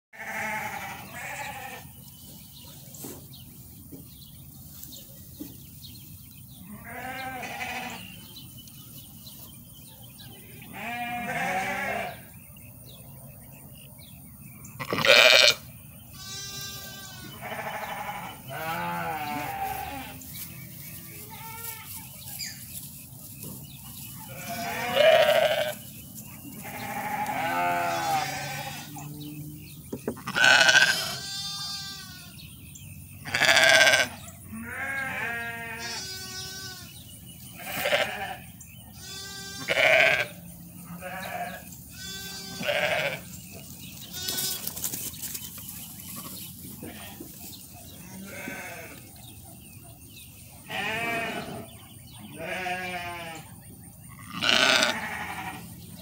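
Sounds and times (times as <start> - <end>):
sheep bleating: 0.2 - 1.8, 6.6 - 8.2, 10.5 - 12.2, 14.8 - 15.6, 16.2 - 20.2, 21.2 - 22.0, 24.3 - 25.8, 26.6 - 29.4, 30.2 - 32.4, 33.3 - 36.9, 37.6 - 38.4, 39.0 - 43.3, 48.1 - 49.0, 50.7 - 51.6, 52.4 - 53.5, 54.1 - 55.6.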